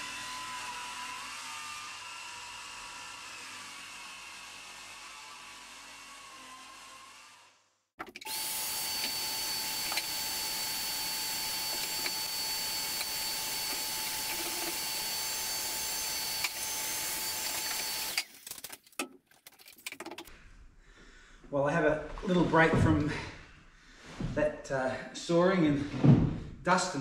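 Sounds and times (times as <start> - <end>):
shop vacuum whining: 0.0 - 7.5, 8.2 - 18.3
power tool whirring down: 0.0 - 7.6, 8.2 - 18.7.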